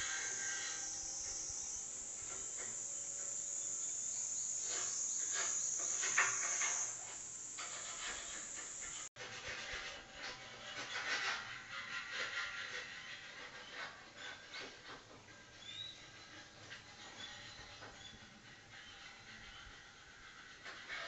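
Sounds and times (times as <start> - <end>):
cicadas buzzing: 0.0 - 9.1
knocks and scrapes from work: 0.0 - 21.0.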